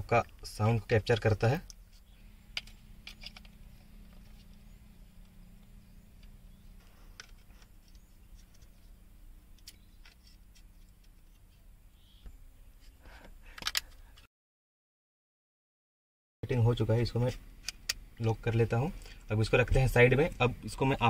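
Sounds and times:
steady low hum: 0.0 - 14.2.

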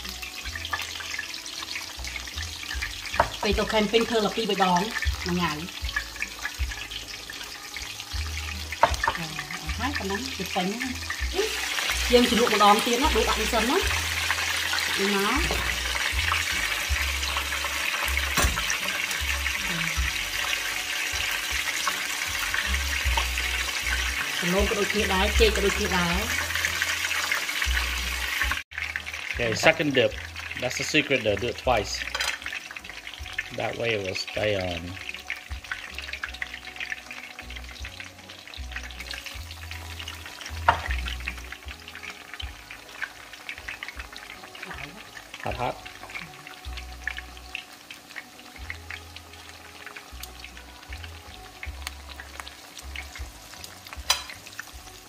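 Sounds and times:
food deep-frying in hot oil: 0.0 - 55.0
oil popping: 8.6 - 33.0.

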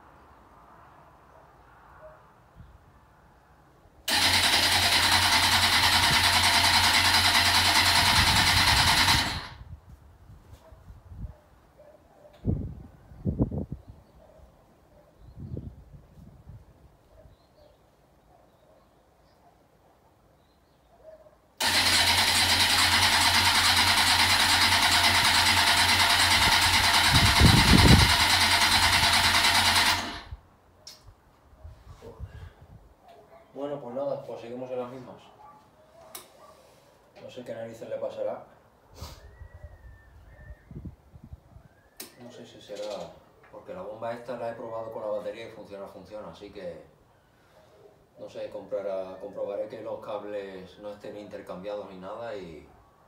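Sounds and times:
engine cranking on electric starter: 4.1 - 9.7, 21.6 - 30.4.

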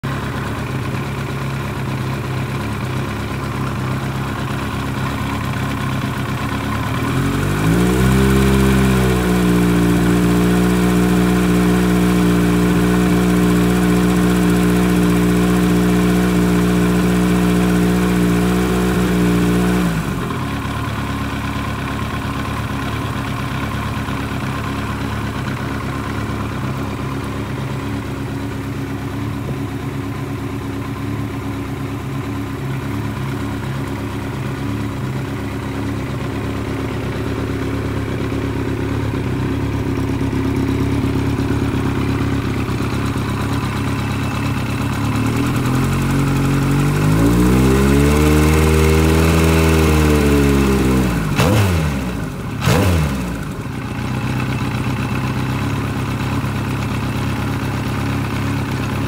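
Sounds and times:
motorcycle engine idling: 0.0 - 59.0.

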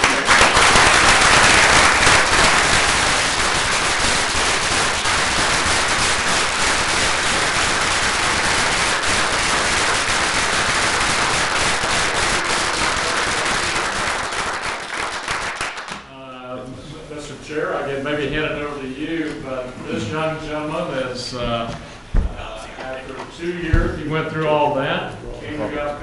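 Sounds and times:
crowd applauding: 0.0 - 16.1.

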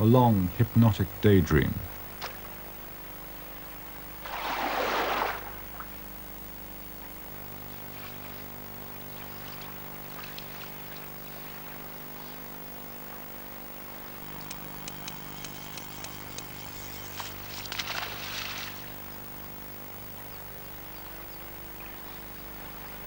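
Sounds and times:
faint flowing water: 0.0 - 23.0
low hum: 0.0 - 23.0
water splash: 4.2 - 6.0, 17.3 - 19.0.

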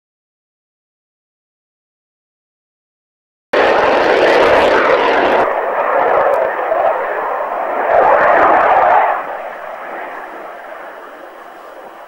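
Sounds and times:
fighter jet engines roaring: 3.6 - 12.0.

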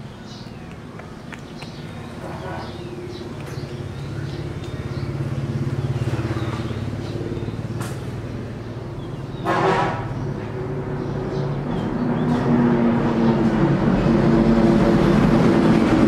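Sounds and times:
motor engine running: 0.3 - 9.2.

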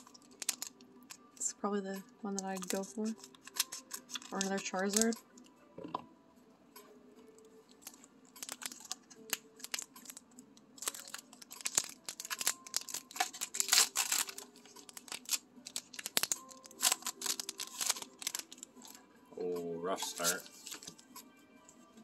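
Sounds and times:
foil pack tearing open: 0.0 - 0.8, 2.5 - 5.2, 7.8 - 10.2, 10.8 - 19.0, 20.1 - 20.9
foil wrapper crinkling: 0.0 - 1.2, 2.4 - 5.2, 7.8 - 19.0, 20.0 - 21.0.

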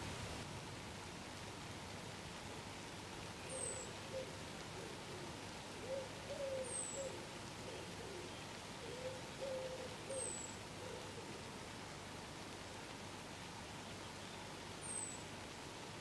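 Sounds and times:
faint outdoor hiss: 0.0 - 16.0
bird cooing: 3.5 - 11.5.

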